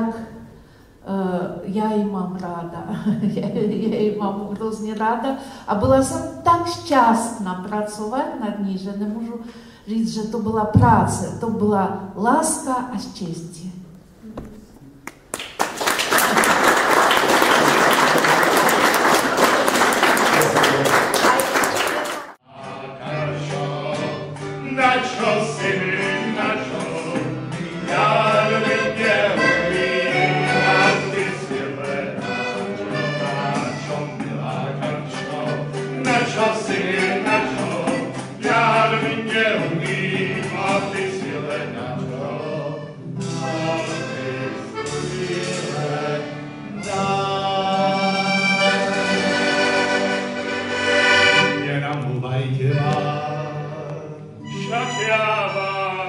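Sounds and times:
audience applause: 0:15.3 - 0:22.4
acoustic guitars: 0:16.3 - 0:56.0
group singing together: 0:16.7 - 0:56.0
accordion: 0:21.6 - 0:56.0.

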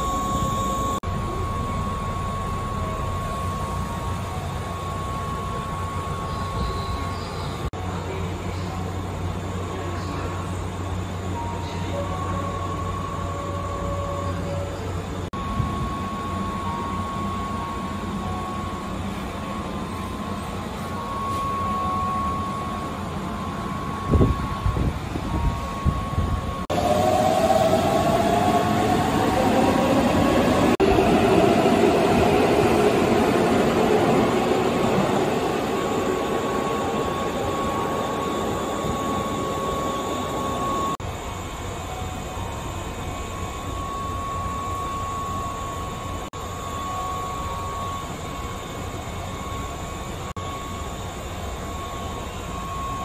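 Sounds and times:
train interior hum: 0:00.0 - 0:53.0
train motor whine rising: 0:12.5 - 0:53.0.

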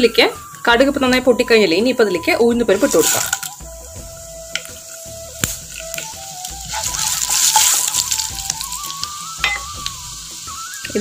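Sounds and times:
lentils sizzling in hot oil: 0:00.2 - 0:11.0
sharp crackles: 0:05.4 - 0:09.2.

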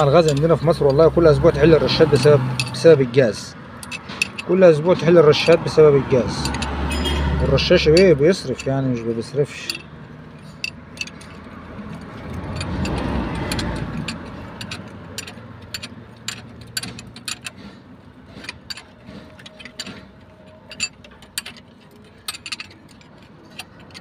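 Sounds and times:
hand tools clinking on metal: 0:00.0 - 0:24.0.

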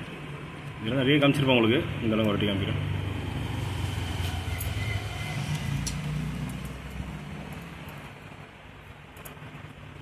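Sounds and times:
road vehicle rumbling past: 0:01.9 - 0:08.8.

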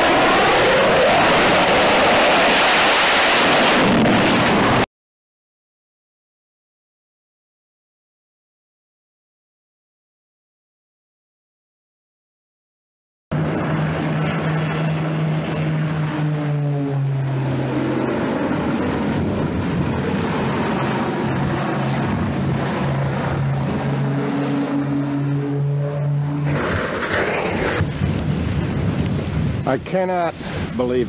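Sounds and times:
propeller airplane flying overhead: 0:00.0 - 0:04.8, 0:13.3 - 0:31.0
broad rushing noise: 0:00.0 - 0:04.9, 0:13.3 - 0:31.0.

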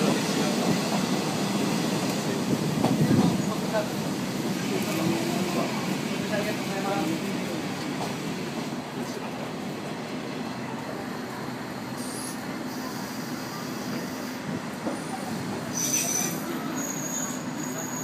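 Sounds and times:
diesel railcar engine drone: 0:00.0 - 0:18.0
train running noise: 0:00.0 - 0:18.0
high wheel squeal: 0:15.0 - 0:18.0.

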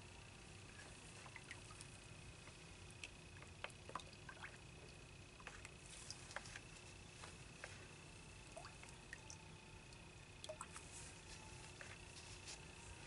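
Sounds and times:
faint high whine: 0:00.0 - 0:13.0.

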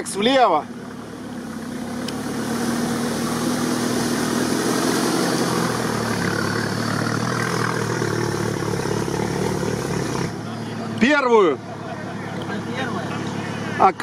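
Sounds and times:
off-road vehicle engine under load: 0:00.0 - 0:14.0.

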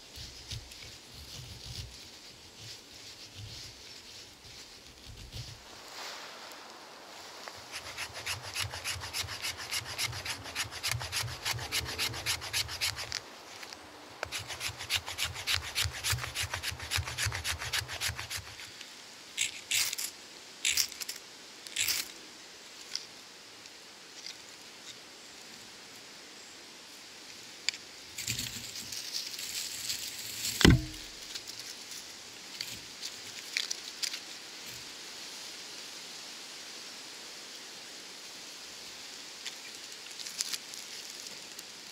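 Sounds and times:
knife shaving wooden stick: 0:07.5 - 0:18.8, 0:30.6 - 0:31.5
ferrocerium rod scraping strikes: 0:07.7 - 0:13.2, 0:30.6 - 0:31.4.

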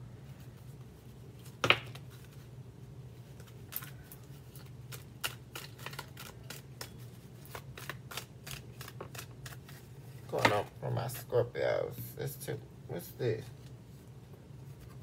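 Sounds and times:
low steady hum: 0:00.0 - 0:15.0
cards being shuffled: 0:03.2 - 0:10.8.

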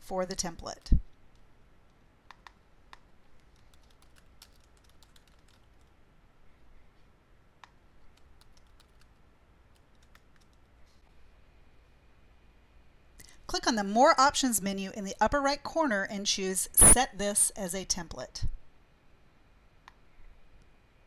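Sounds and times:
low room hum: 0:00.0 - 0:21.0
keyboard typing: 0:02.3 - 0:05.9, 0:07.6 - 0:10.7.

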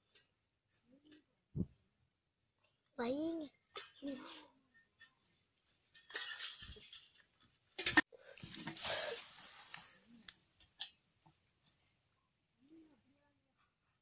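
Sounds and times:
soil scraping: 0:05.8 - 0:10.1.

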